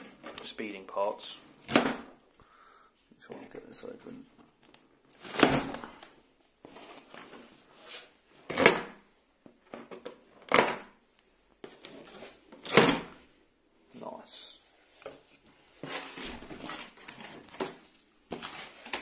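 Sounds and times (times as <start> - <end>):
blade scraping cardboard: 15.8 - 19.0.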